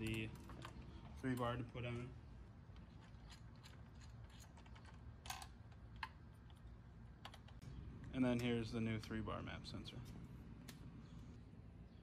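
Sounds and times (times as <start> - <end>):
low steady hum: 0.0 - 12.0
small clicks and taps on engine parts: 2.7 - 7.7.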